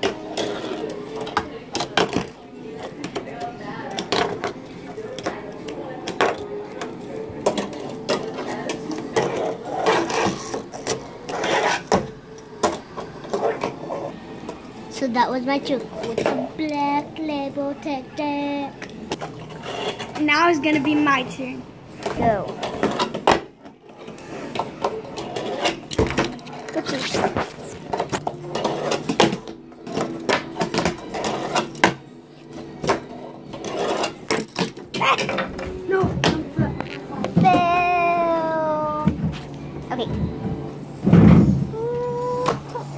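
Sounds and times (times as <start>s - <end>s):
fingerboard wheels rolling: 9.1s - 12.0s, 24.0s - 31.9s, 32.8s - 34.4s.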